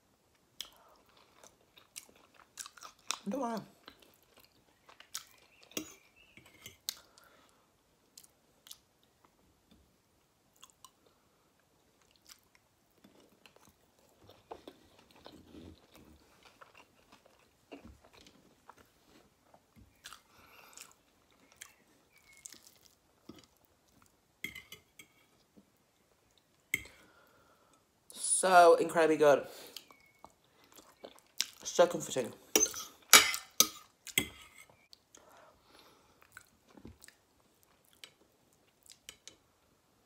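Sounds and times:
chewing soft food: 0.3s - 9.4s, 10.5s - 24.2s, 29.8s - 31.6s, 34.8s - 39.7s.

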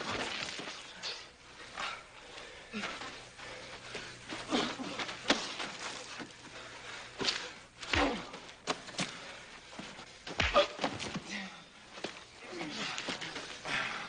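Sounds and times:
men grunting: 4.4s - 5.7s, 7.9s - 8.5s, 12.4s - 14.0s
punches and body blows: 4.5s - 6.0s, 7.2s - 9.2s, 10.2s - 13.2s.

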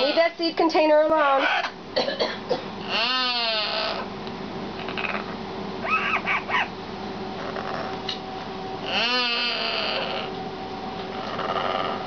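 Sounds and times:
parrot calling harshly: 1.3s - 1.8s, 2.8s - 4.1s, 5.8s - 6.7s, 8.8s - 10.3s.

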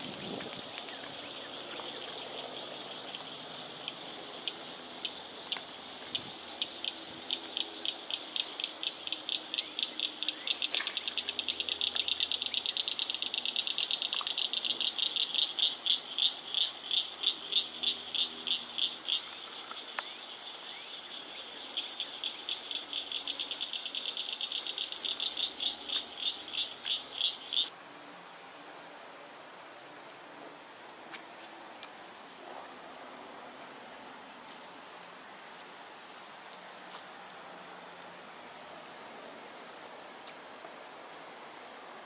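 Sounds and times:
frog calling with clicking notes: 2.8s - 21.2s, 21.8s - 27.7s.

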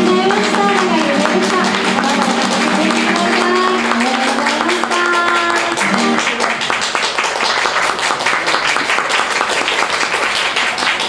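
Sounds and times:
person singing: 0.0s - 6.6s
acoustic guitar: 0.0s - 6.9s
crowd applauding: 0.0s - 11.0s.

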